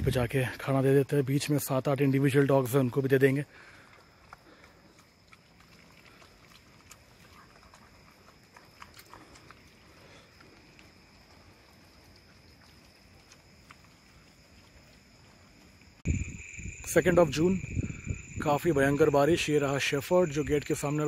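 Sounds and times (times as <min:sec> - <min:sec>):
dogs eating from plastic bucket: 0:00.6 - 0:15.8.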